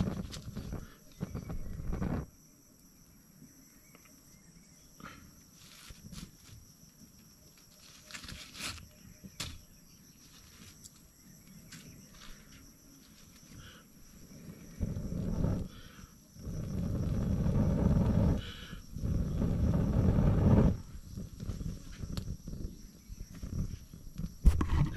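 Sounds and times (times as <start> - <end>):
insects chirring: 0.0 - 24.9.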